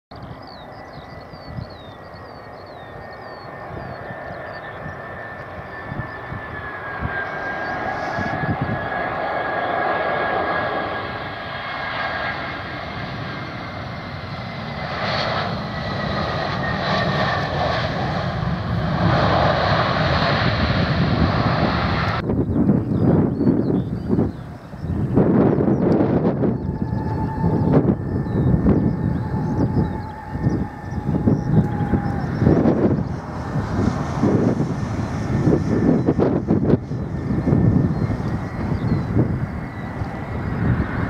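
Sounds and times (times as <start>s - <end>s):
jet airliner engines whining: 0.1s - 41.0s.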